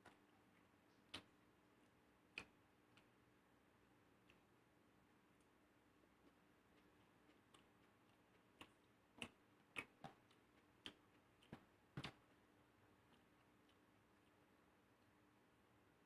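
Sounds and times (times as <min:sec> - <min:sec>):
eating clicks and smacks: 0:00.0 - 0:03.2, 0:04.2 - 0:04.5, 0:06.2 - 0:15.1
faint steady hum: 0:00.0 - 0:16.0.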